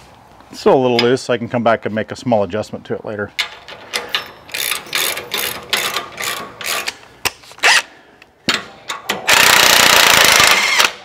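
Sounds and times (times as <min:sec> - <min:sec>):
metal hand tools clicking and scraping: 0:03.6 - 0:07.0.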